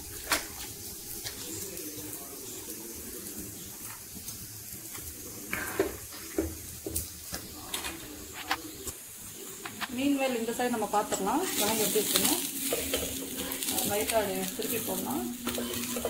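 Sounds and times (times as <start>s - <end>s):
pan simmering: 0.0s - 16.0s
steel ladle knocking on pan: 12.1s - 14.0s, 15.4s - 16.0s.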